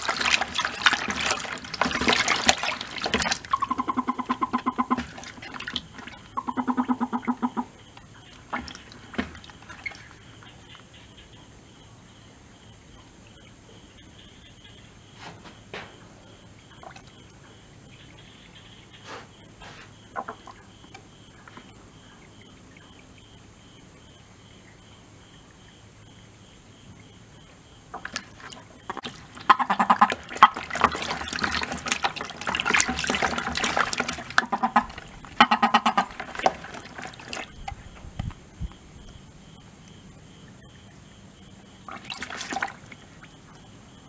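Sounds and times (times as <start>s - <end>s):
toads splashing in water: 0.0s - 11.2s, 16.6s - 17.4s, 27.9s - 44.0s
crickets chirping: 0.0s - 44.0s.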